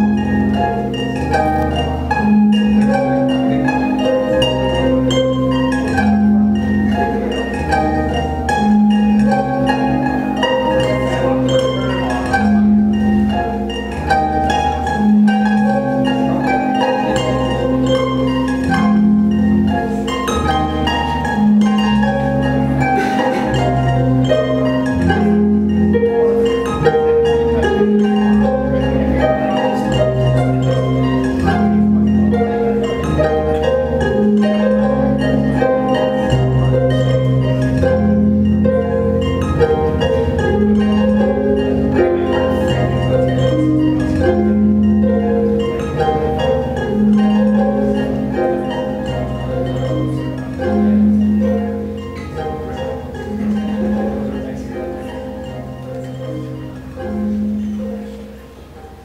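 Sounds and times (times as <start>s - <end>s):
harp plucked notes: 0.0s - 59.0s.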